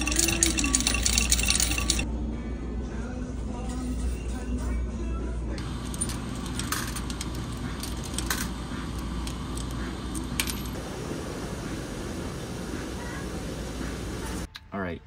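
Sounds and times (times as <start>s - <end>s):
coins clinking into coin slot: 0.0s - 2.0s, 5.6s - 10.8s
low machine hum: 0.0s - 14.5s.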